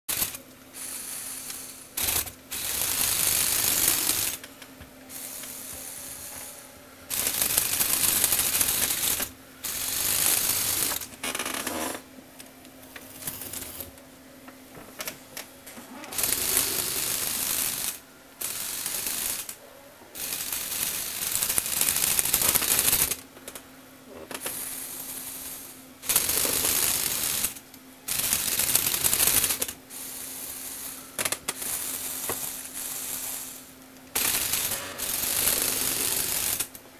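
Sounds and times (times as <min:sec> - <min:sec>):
toy motor with rattling plastic gears: 0:00.1 - 0:04.5, 0:07.1 - 0:12.0, 0:16.0 - 0:19.6, 0:20.2 - 0:23.2, 0:24.3 - 0:36.8.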